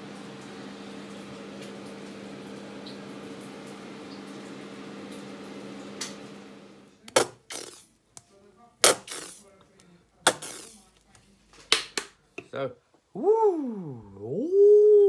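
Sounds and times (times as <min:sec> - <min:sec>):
kitchen appliance humming: 0:00.0 - 0:07.9.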